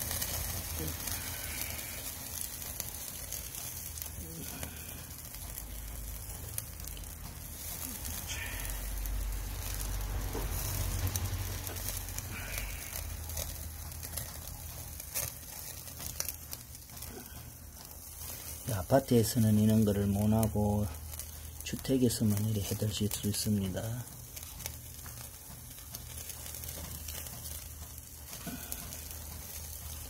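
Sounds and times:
meat sizzling on a grill: 0.0 - 30.0
sharp crackles: 0.0 - 30.0
low rumble: 4.0 - 15.2.

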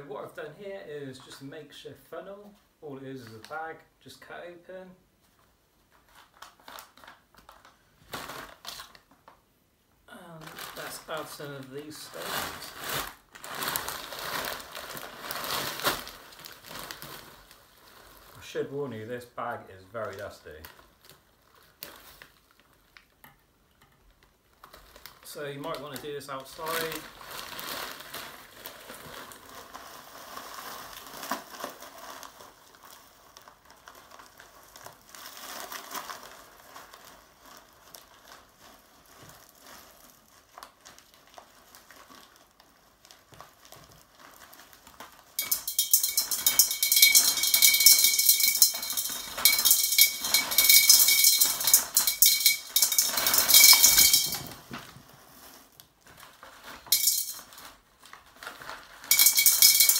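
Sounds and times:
bag rustling: 44.0 - 55.7
dense rattle of pouring stones: 45.3 - 54.7, 56.8 - 57.6, 59.0 - 59.9
stones clinking against glass: 45.4 - 54.6, 56.9 - 57.6, 59.1 - 59.9.

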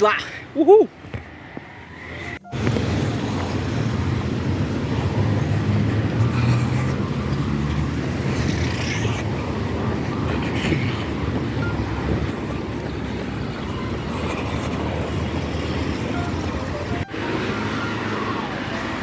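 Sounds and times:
wind buffeting microphone: 9.2 - 16.1.

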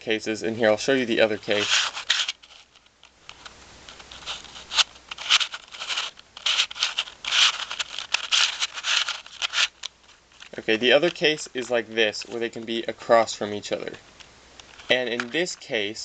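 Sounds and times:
puzzle layers scraping and clicking: 1.2 - 12.8.

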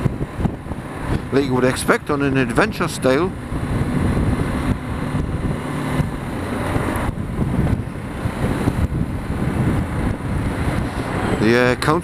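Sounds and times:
wind noise on microphone: 0.0 - 12.0
motorcycle engine running: 2.1 - 11.6.

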